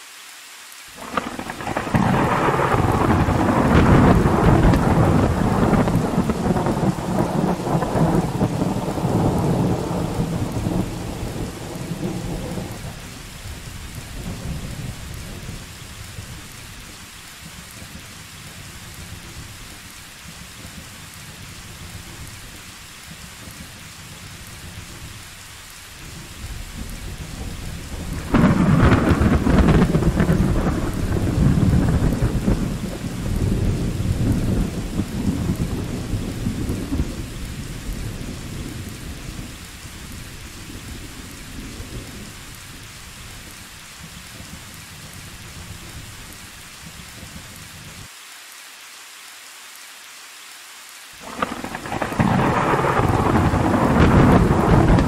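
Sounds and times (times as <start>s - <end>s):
steady rain: 0.0s - 55.0s
thunder rumbling and clapping: 1.0s - 16.5s, 26.1s - 42.7s, 51.2s - 55.0s.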